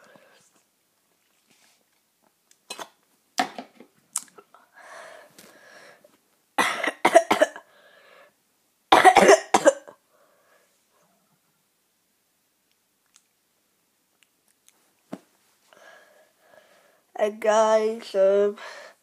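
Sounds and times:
boy coughing: 6.6s - 7.7s, 9.0s - 10.0s.

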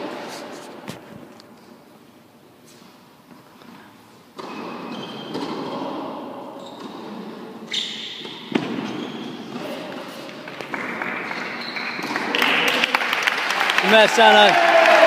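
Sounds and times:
racket hitting ball: 8.1s - 12.6s
spectators clapping: 10.4s - 15.0s.

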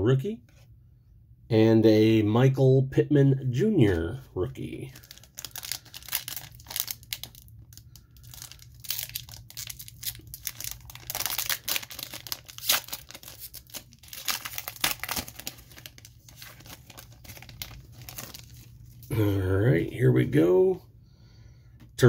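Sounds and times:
foil wrapper tearing and crinkling: 4.9s - 19.1s.

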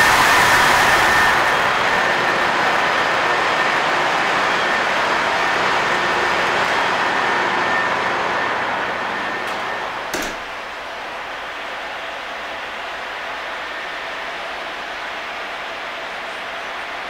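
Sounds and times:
engine room machinery noise: 0.0s - 17.0s
door shutting: 9.4s - 10.7s.

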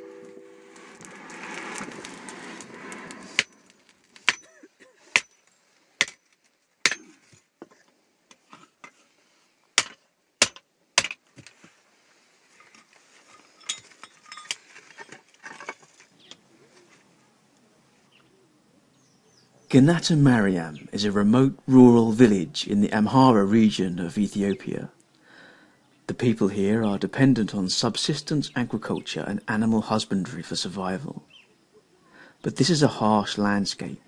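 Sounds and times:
short rushing noise: 0.0s - 3.7s
hammer striking iron: 6.8s - 7.1s, 9.8s - 11.2s.

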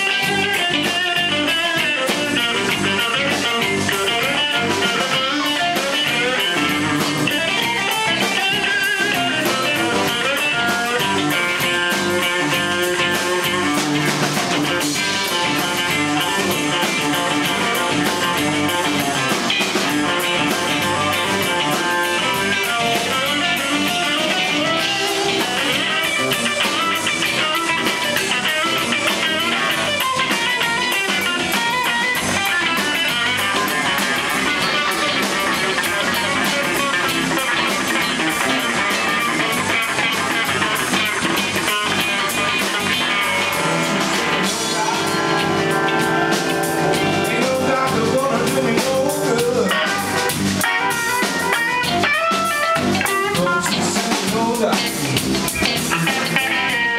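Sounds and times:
bass: 0.0s - 56.9s
drum kit: 0.0s - 56.9s
electric guitar lead: 0.0s - 56.9s.

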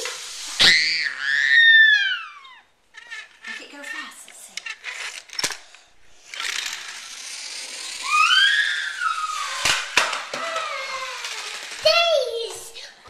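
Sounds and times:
child squealing: 0.6s - 4.1s, 7.9s - 12.7s.

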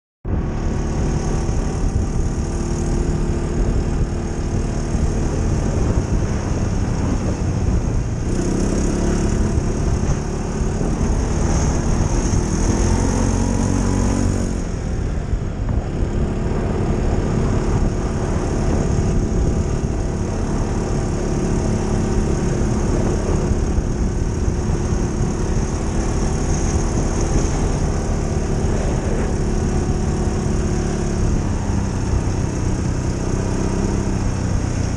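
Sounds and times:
atv engine running: 0.3s - 34.9s.

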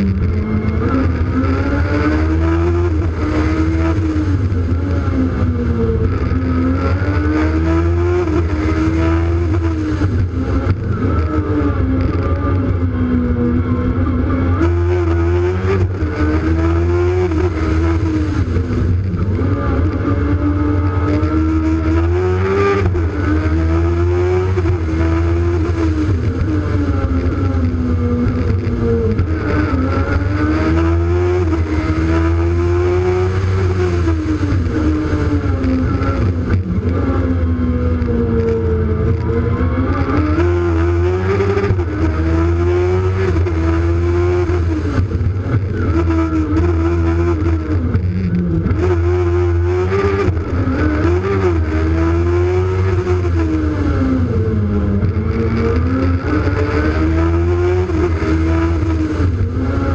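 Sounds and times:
car engine revving: 0.0s - 59.9s.

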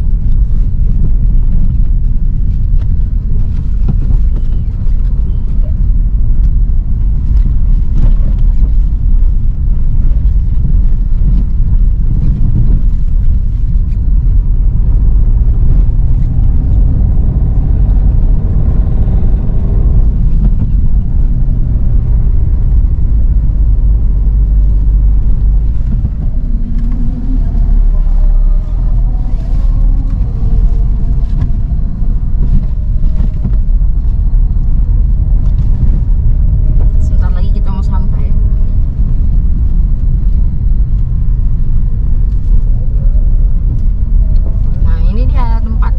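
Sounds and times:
car interior engine and tyre rumble: 0.0s - 45.9s.

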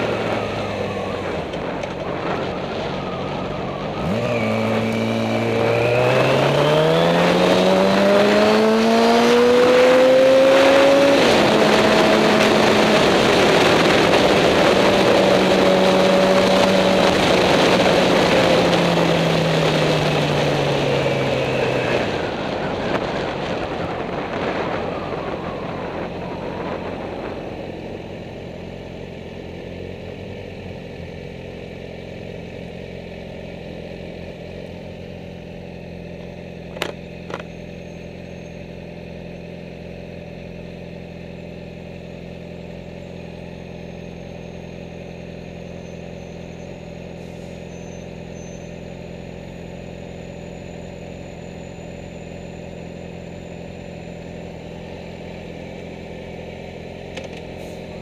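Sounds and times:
motorcycle engine idling: 0.0s - 6.3s, 11.3s - 58.0s
wind rush: 10.8s - 27.7s.

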